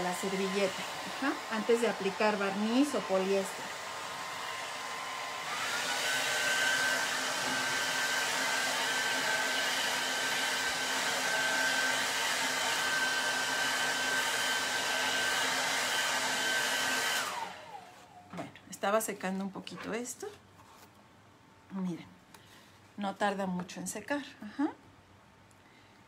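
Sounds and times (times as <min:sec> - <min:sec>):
hot-air dryer blowing: 0:00.0 - 0:18.4.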